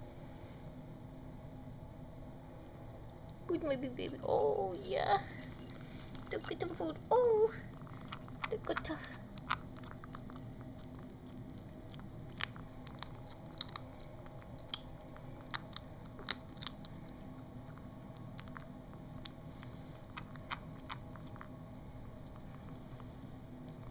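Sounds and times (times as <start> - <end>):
kitten chewing food: 2.4 - 3.5, 5.2 - 23.9.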